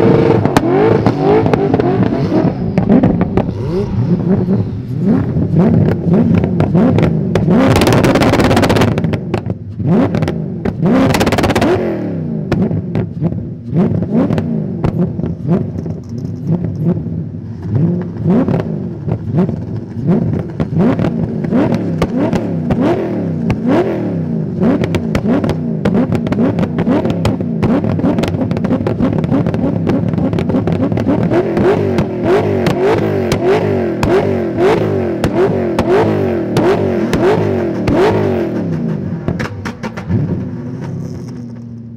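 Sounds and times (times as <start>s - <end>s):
car engine revving in blips: 0.0s - 41.9s.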